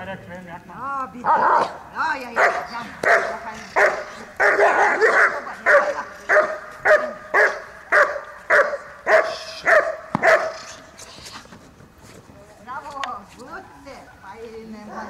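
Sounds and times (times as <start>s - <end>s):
dog barking: 2.4s - 10.7s.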